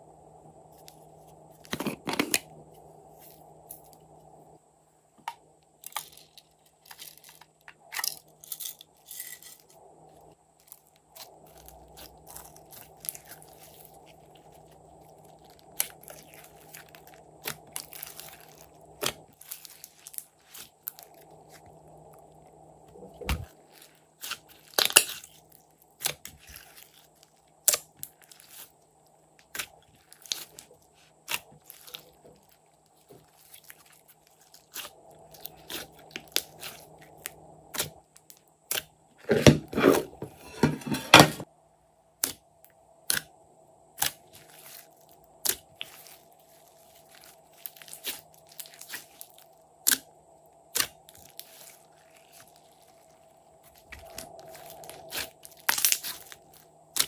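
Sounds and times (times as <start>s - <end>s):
slime squishing and popping: 10.7s - 21.6s, 23.2s - 28.7s, 50.7s - 57.0s.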